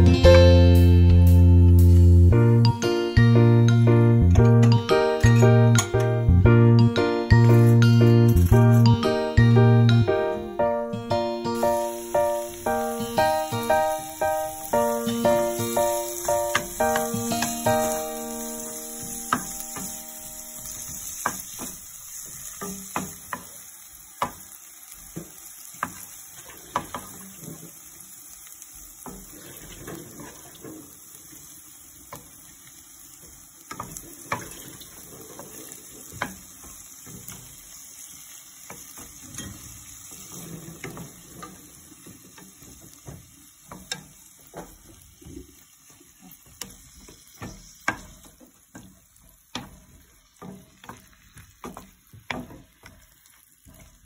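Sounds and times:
food sizzling in oil: 0:00.0 - 0:54.0
wooden spatula knocking pan: 0:12.0 - 0:20.0, 0:20.6 - 0:23.6, 0:36.0 - 0:37.6, 0:38.6 - 0:54.0.

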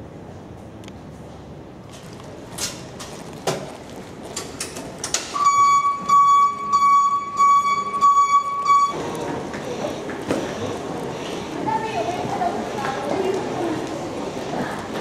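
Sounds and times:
high electronic warning beeper: 0:05.4 - 0:09.1.

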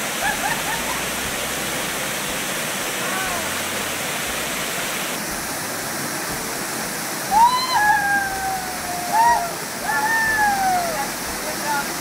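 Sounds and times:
waterfall pouring over boulders: 0:00.0 - 0:12.0.

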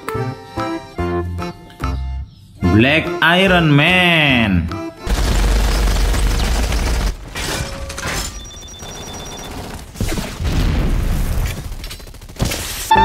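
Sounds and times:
heavy booms and blasts: 0:10.0 - 0:11.7.

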